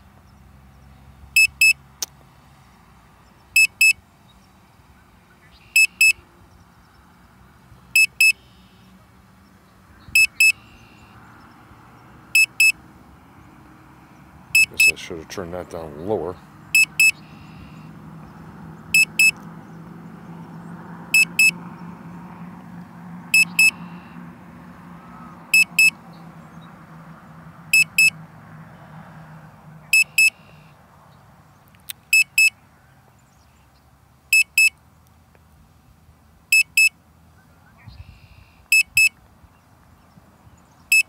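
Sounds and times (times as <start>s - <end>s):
remote controller alert beeps: 5.8s - 6.2s, 10.2s - 10.8s, 12.4s - 12.8s, 14.6s - 15.0s, 16.8s - 17.2s, 19.0s - 19.4s, 21.2s - 21.5s, 23.4s - 23.8s, 25.6s - 25.9s, 30.0s - 30.4s.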